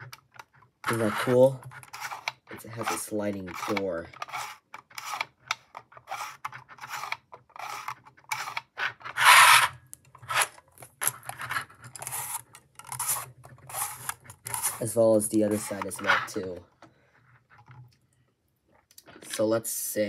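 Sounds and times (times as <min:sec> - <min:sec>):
plastic sliding door scraping: 0:06.0 - 0:09.7.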